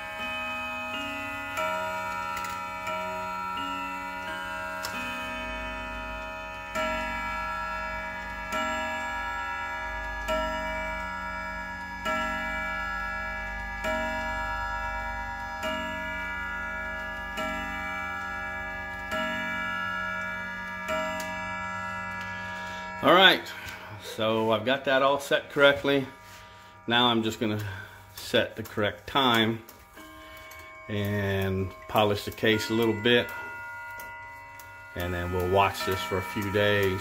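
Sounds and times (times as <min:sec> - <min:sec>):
wall clock chime strikes: 0:00.0 - 0:37.0
clock ticking: 0:15.6 - 0:21.4, 0:26.9 - 0:37.0.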